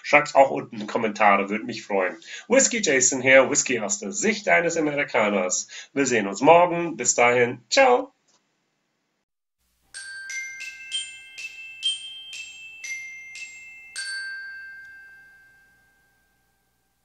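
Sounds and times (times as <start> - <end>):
glockenspiel jingle: 9.8 - 17.0.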